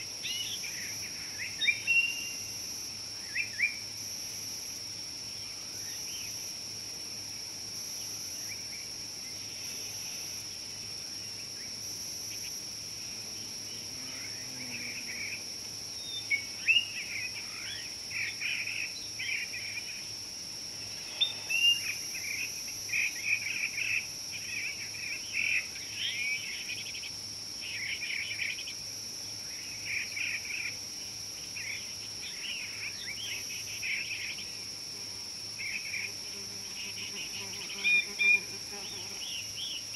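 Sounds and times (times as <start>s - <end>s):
high-pitched insect drone: 8.0s - 39.9s.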